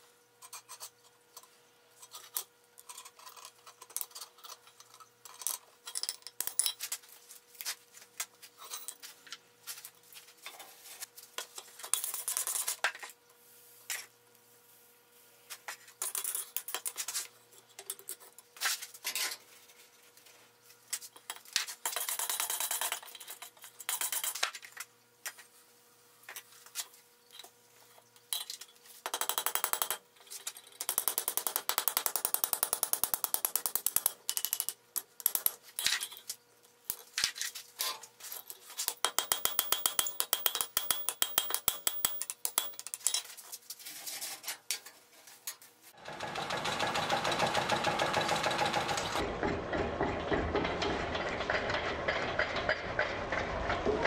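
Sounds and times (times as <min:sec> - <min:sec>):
hammer striking iron on anvil: 0:38.9 - 0:42.8
power hammer pounding: 0:46.0 - 0:54.0.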